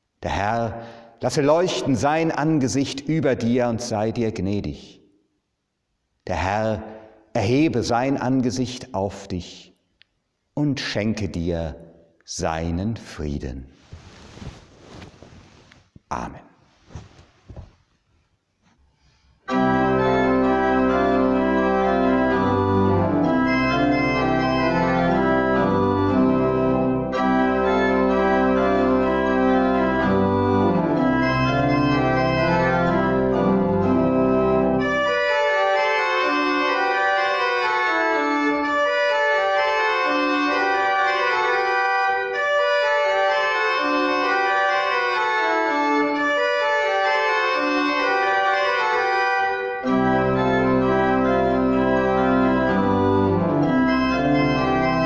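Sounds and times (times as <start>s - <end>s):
church pipe organ playing: 0.3s - 4.6s, 19.4s - 55.0s.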